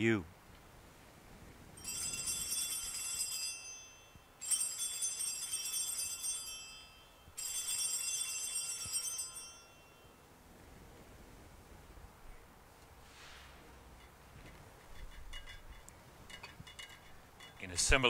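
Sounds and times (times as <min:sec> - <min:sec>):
altar bells ringing: 0:01.8 - 0:10.3.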